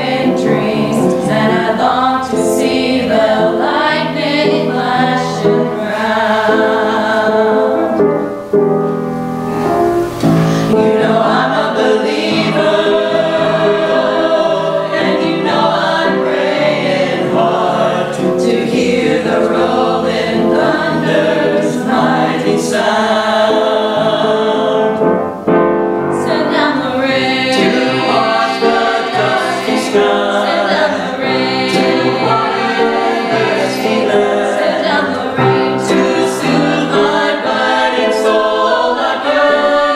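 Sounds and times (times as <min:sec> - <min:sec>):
choir singing in harmony: 0:00.0 - 0:08.3, 0:10.1 - 0:39.9.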